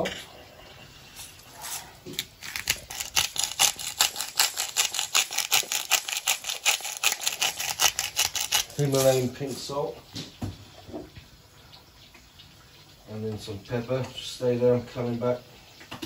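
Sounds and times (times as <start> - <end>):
salt grinder crunching: 2.1 - 9.3.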